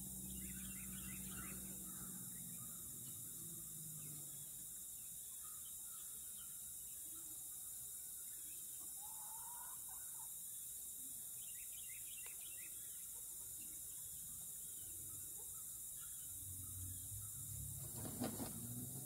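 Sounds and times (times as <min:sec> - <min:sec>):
faint bird calls: 0:00.0 - 0:18.9
steady high hiss: 0:00.0 - 0:19.0.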